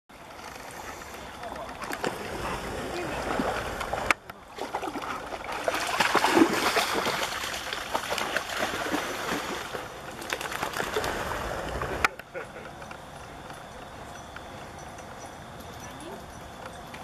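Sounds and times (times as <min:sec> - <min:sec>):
water splashing and lapping: 0:00.2 - 0:12.2.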